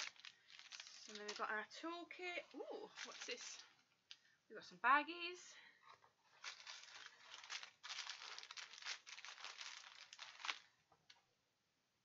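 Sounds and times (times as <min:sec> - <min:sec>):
plastic baggies crinkling: 0:00.0 - 0:01.8, 0:02.4 - 0:04.3, 0:05.9 - 0:11.2.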